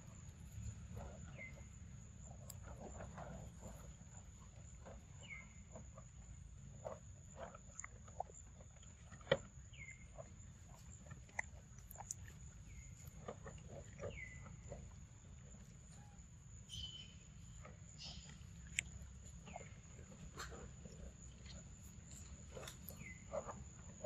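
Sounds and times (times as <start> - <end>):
monkey chewing wet smacking: 10.5 - 15.0.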